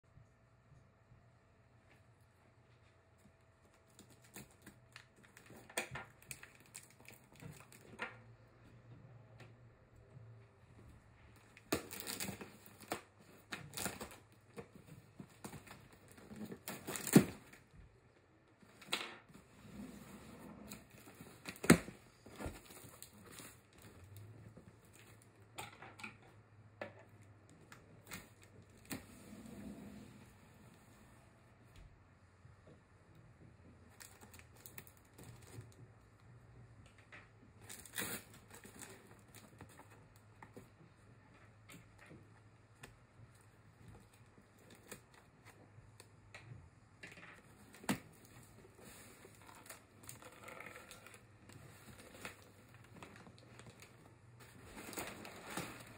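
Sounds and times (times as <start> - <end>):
packing paper crinkling: 3.8 - 8.0
cardboard flaps tearing: 15.4 - 17.6.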